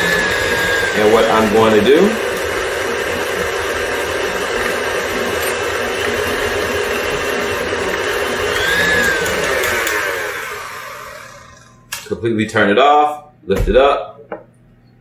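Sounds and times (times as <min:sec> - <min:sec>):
electric stand mixer running: 0:00.0 - 0:11.9.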